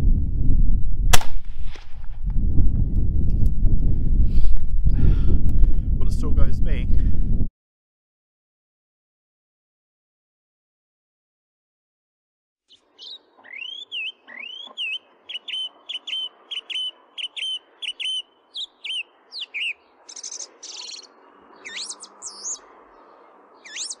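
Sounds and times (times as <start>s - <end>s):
bird singing whistled notes: 12.7s - 22.7s, 23.6s - 24.0s.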